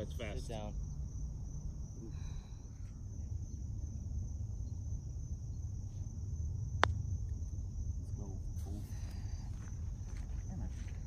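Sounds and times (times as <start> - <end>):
insects buzzing: 0.0 - 11.0
putter striking golf ball: 6.8 - 7.2.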